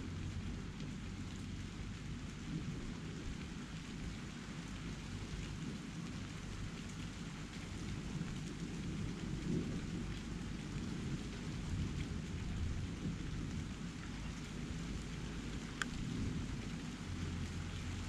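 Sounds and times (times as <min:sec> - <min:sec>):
steady rain falling: 0:00.0 - 0:18.0.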